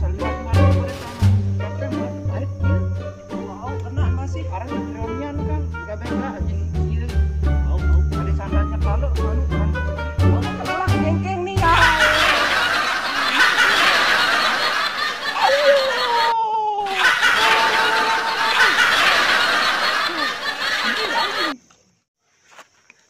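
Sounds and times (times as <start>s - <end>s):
group of people laughing: 11.7s - 21.6s.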